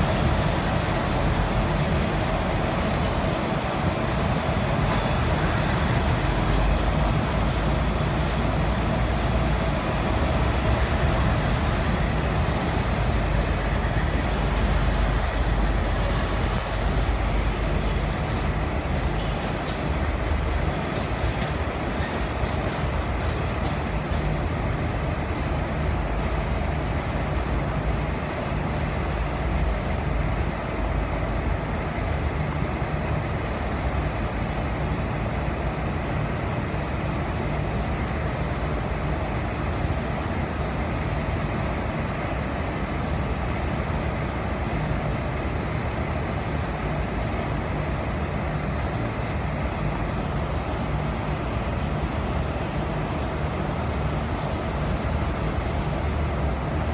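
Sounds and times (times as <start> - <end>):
diesel rail engines idling: 0.0 - 56.9.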